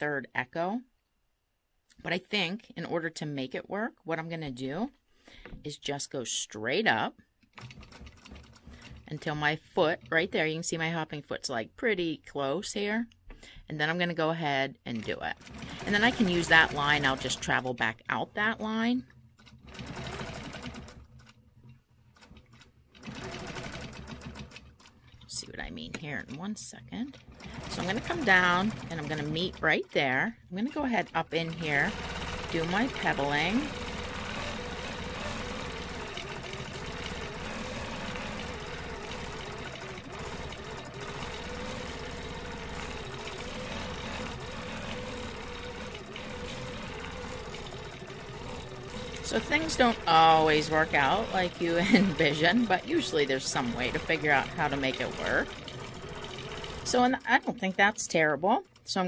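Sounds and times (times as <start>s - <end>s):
quilting machine stitching: 7.5s - 10.6s, 14.9s - 58.2s.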